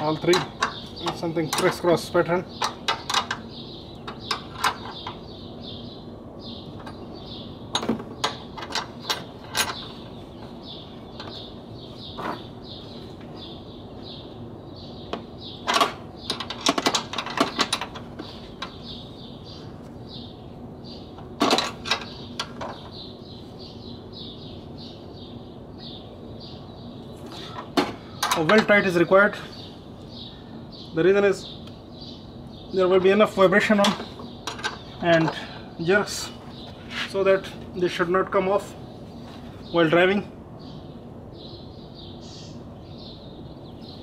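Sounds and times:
spanner clicking on metal nuts: 0.1 - 2.0, 2.6 - 3.4
faint high chirping: 41.4 - 44.0.

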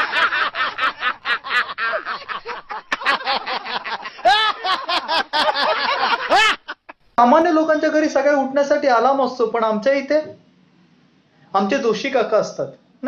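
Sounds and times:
high-pitched laugh: 0.0 - 7.0
men laughing: 0.0 - 7.0.

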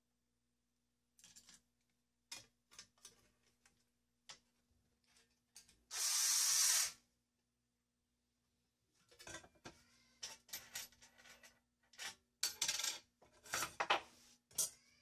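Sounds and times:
cordless screwdriver buzzing: 5.9 - 7.0.

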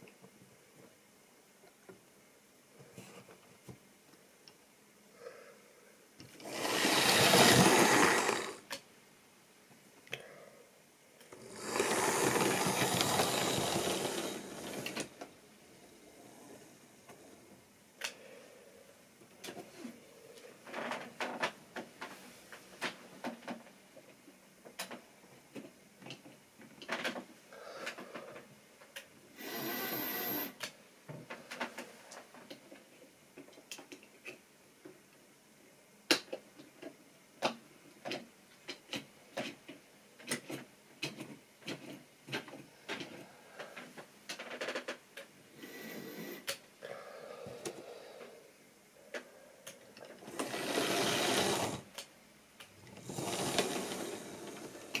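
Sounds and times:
model railway clicks and clatter: 11.6 - 15.1.

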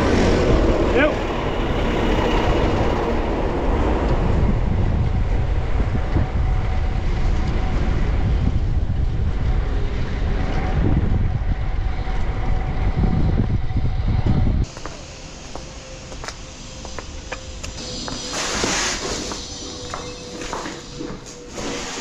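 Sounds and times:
wind rumble on microphone: 0.0 - 14.7
passing traffic: 0.0 - 21.6.

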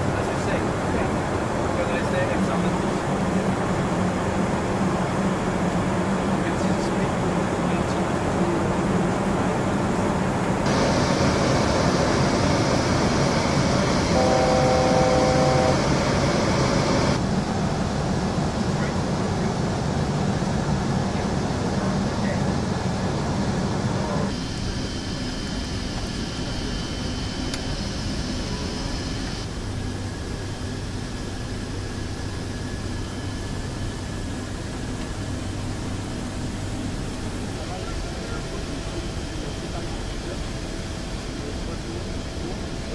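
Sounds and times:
aircraft cockpit engine noise: 0.0 - 42.9
airflow noise: 10.6 - 17.8
steady electronic tone: 10.7 - 17.2.

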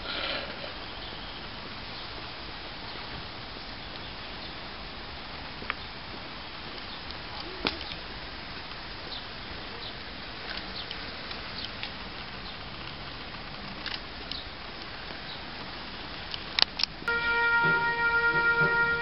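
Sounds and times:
steady outdoor hiss: 0.0 - 19.0
faint clicks and ticks: 10.4 - 15.7.

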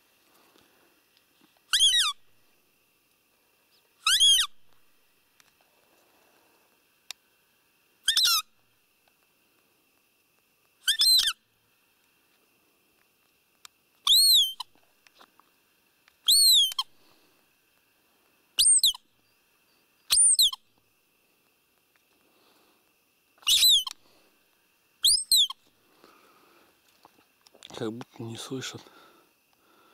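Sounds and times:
deer call squeaker: 1.7 - 2.2, 4.0 - 4.6, 8.0 - 8.5, 10.8 - 11.4, 14.0 - 14.7, 16.3 - 16.9, 18.6 - 19.0, 20.1 - 20.6, 23.4 - 24.0, 25.0 - 25.6.

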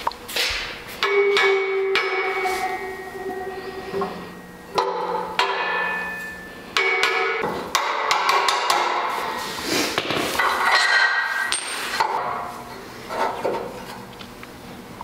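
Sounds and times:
hammer striking metal: 1.0 - 9.4.

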